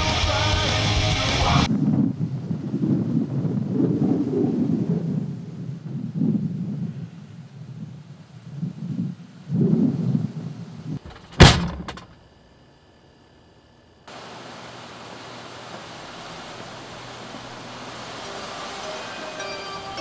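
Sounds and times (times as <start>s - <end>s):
outdoor ambience hiss: 0.0s - 3.7s, 4.6s - 20.0s
car door slamming: 11.0s - 12.2s.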